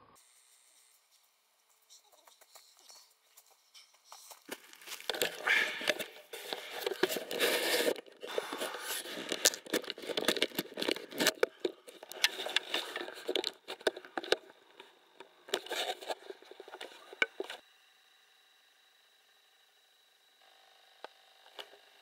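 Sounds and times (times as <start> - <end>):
rustling against microphone: 1.1 - 14.4.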